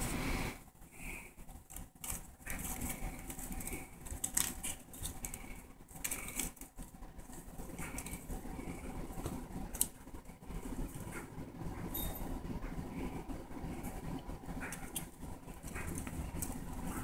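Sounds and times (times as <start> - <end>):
rustling and scratching of cloth: 1.0 - 11.9
cat scuffling in wicker basket: 1.1 - 9.8.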